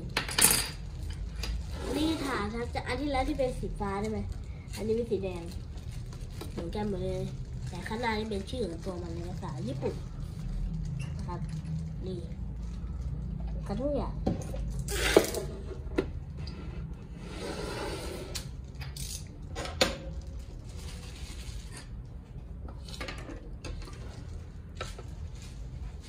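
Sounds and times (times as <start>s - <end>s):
rustling and scraping: 20.1s - 26.0s.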